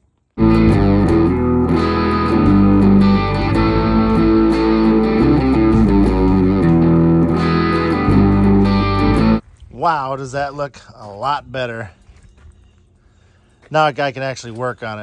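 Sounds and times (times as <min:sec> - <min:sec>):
electric guitar music with beat: 0:00.4 - 0:09.4.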